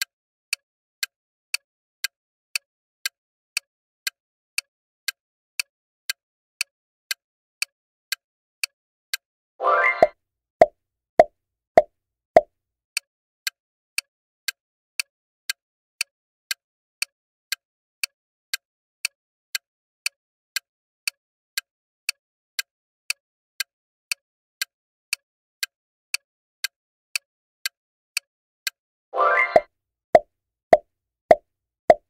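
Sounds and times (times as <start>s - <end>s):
countdown timer clock ticks: 10.0s - 10.2s.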